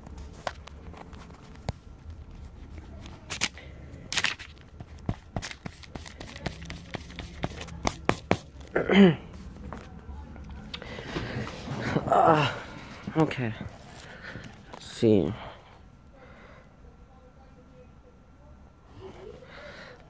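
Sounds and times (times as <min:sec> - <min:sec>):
pencil drawing on paper: 0:05.1 - 0:08.5.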